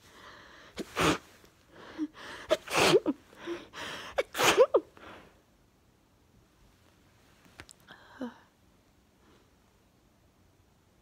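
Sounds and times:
woman sneezing: 2.5 - 3.2, 4.2 - 4.9.

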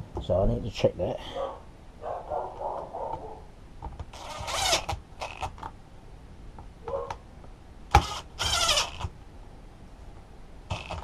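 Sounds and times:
cordless drill motor whirring: 4.1 - 5.6, 7.9 - 9.1, 10.7 - 11.0.

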